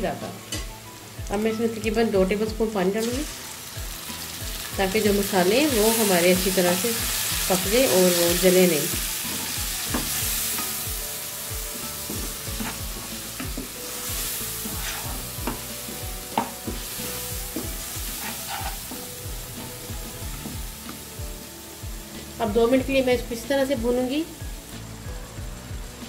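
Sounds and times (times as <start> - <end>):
vegetables sizzling in a wok: 0.0 - 26.0
spatula scraping a pan: 11.9 - 15.6, 16.4 - 19.1
spatula tapping against a pan: 15.4 - 15.7.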